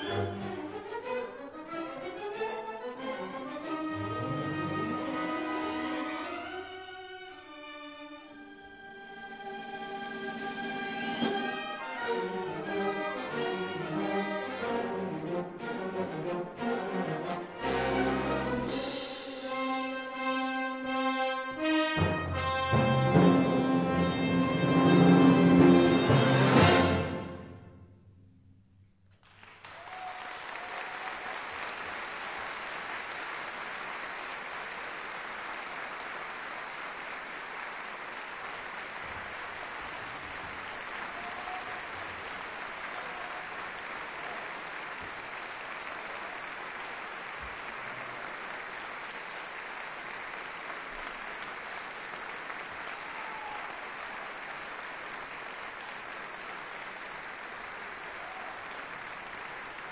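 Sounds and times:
audience applauding: 29.1s - 59.9s.

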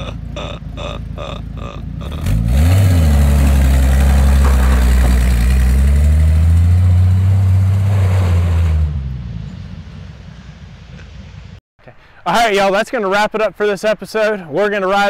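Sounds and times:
truck engine droning: 0.0s - 11.4s.

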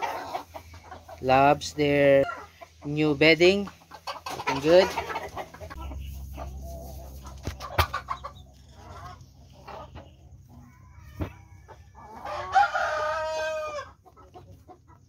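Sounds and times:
chickens clucking: 0.0s - 15.0s
rooster crowing: 10.6s - 13.9s.

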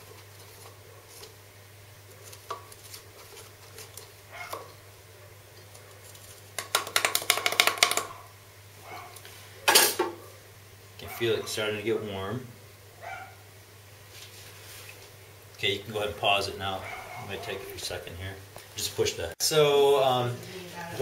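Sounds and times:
stick stirring wet salt: 2.0s - 4.8s.

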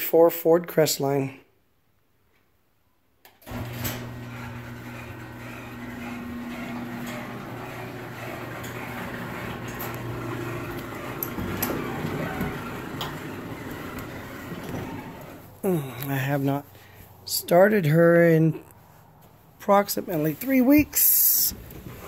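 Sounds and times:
garage door opener motor hum: 3.4s - 15.6s.

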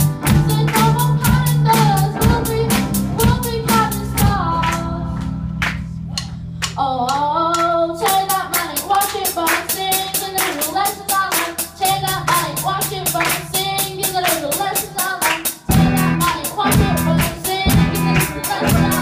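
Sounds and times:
electric guitar: 0.0s - 5.9s, 15.5s - 19.0s
drum kit beat: 0.0s - 19.0s
person singing: 6.2s - 19.0s.

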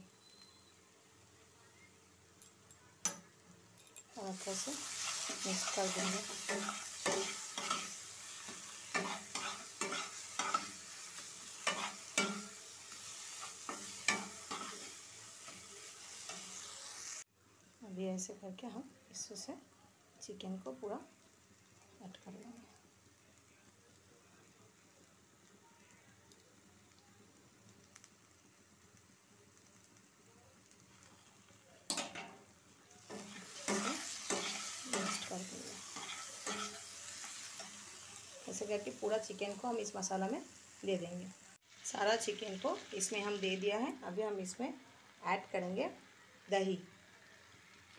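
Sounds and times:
paste sizzling in oil: 4.1s - 17.9s, 26.3s - 47.9s
metal spatula scraping a frying pan: 4.5s - 16.7s, 33.1s - 37.8s.

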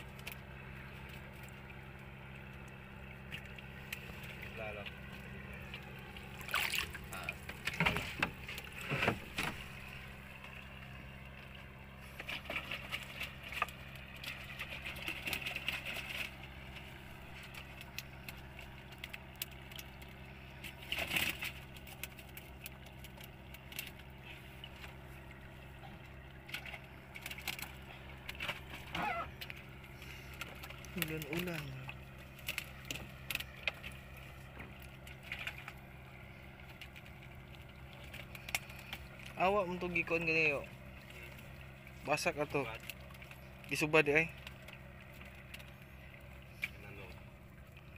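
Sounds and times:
boat engine idling: 0.0s - 47.9s
water splashing: 0.0s - 47.9s
knocks and rattles of fish trap: 6.3s - 10.0s, 12.2s - 16.8s, 20.7s - 24.0s, 26.4s - 29.7s.

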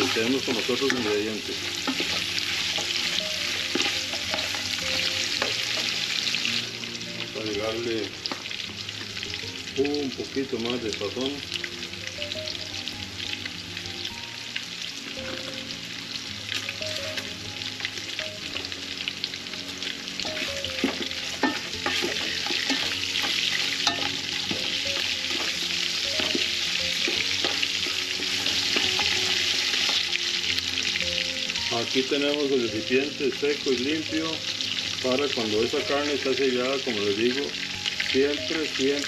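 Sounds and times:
utensil stirring in a pot: 0.0s - 6.3s, 20.2s - 30.4s
meat sizzling in hot oil: 0.0s - 39.0s.

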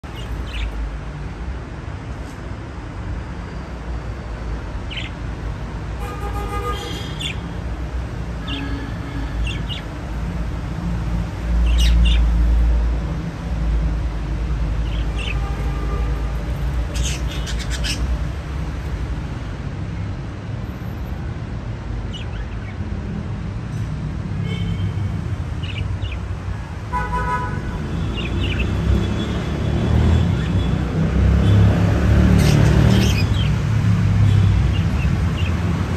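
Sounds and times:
budgerigars chirping: 0.1s - 0.8s, 4.9s - 5.2s, 9.4s - 9.9s, 11.6s - 12.3s, 16.9s - 18.1s, 28.1s - 28.8s.

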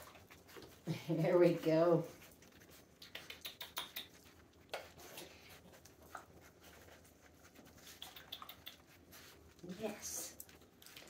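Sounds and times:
puppy claws scratching on floor: 0.0s - 11.0s
puppies squeaking: 2.5s - 5.5s, 7.2s - 9.4s.

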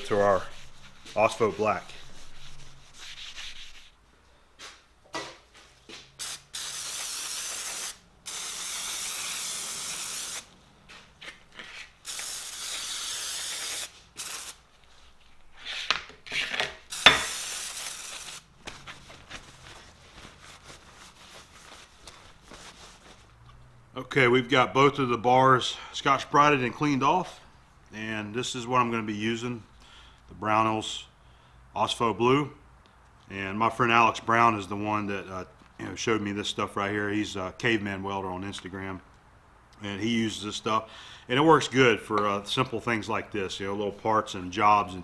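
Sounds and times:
abrasive pad scrubbing metal: 0.0s - 4.0s
aerosol spray hissing: 6.2s - 10.5s, 12.0s - 14.6s, 16.9s - 18.4s.

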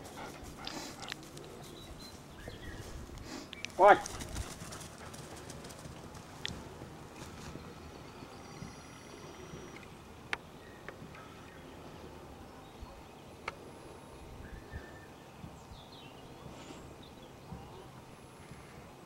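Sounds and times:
wind rumble on microphone: 14.1s - 19.0s.

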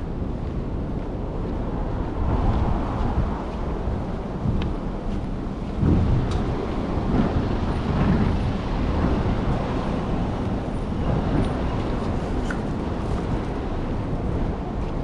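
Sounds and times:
road traffic rumbling: 0.0s - 15.0s.

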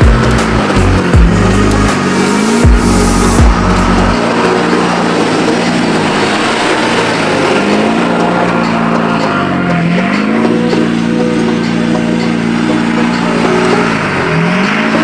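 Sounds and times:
truck engine running hard: 0.0s - 15.0s
spinning tyres throwing snow and gravel: 3.5s - 10.6s.

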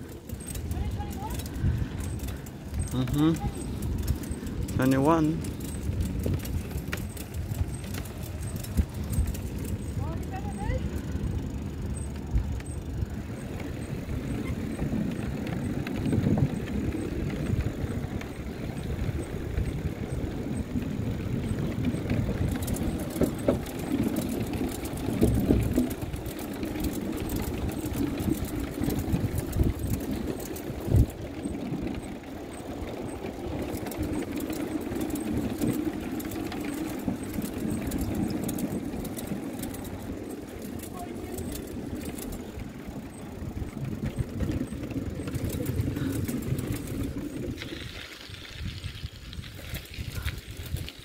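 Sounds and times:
light clicks and rattles: 0.0s - 11.2s, 21.4s - 51.0s
bicycle tyres rumbling on wood: 0.0s - 51.0s
faint regular ticking: 0.0s - 51.0s.

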